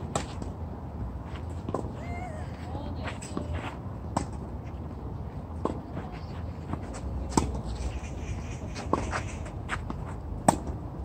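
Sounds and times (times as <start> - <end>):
racket striking tennis ball: 8.8 - 10.8.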